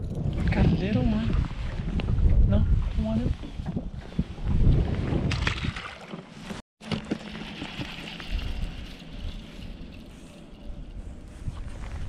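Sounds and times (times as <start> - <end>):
wind buffeting microphone: 0.0 - 5.9.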